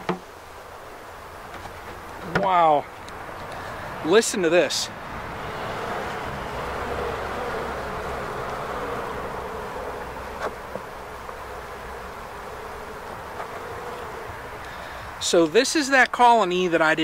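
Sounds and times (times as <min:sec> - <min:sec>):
bees humming in hive: 0:00.0 - 0:17.0.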